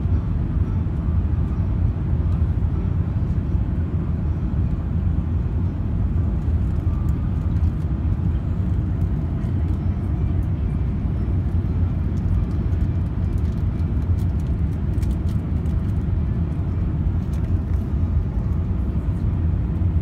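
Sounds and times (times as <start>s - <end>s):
aircraft cabin rumble: 0.0s - 20.0s
jet engine and airflow noise: 0.0s - 20.0s.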